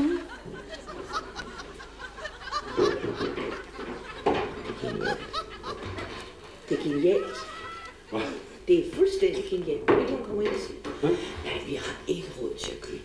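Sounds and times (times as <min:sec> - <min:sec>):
woman stifling laughter: 0:00.0 - 0:08.4.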